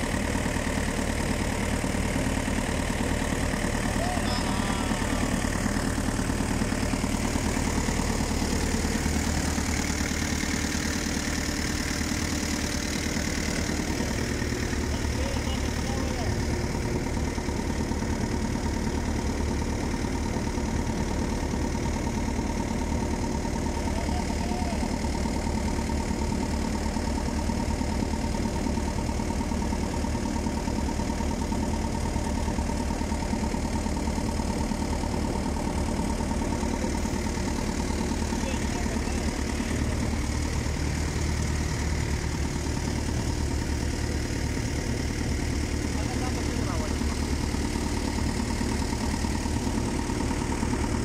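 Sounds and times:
boat engine droning: 3.3 - 18.7.

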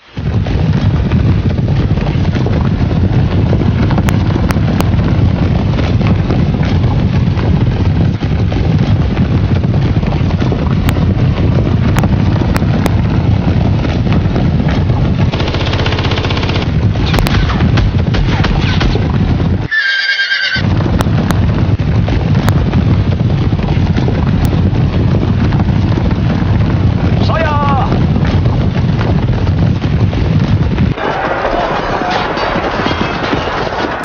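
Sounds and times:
many horses galloping: 0.0 - 34.0
rapid gunfire: 0.2 - 19.6.

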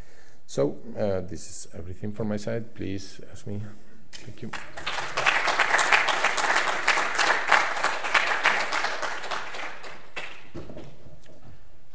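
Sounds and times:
audience applauding: 4.5 - 10.7.

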